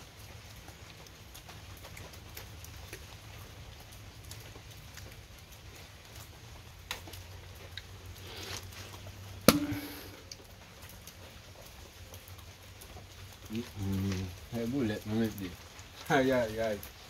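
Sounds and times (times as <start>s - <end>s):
low hum: 9.3s - 10.6s
metallic clank on bowl: 9.5s - 10.2s.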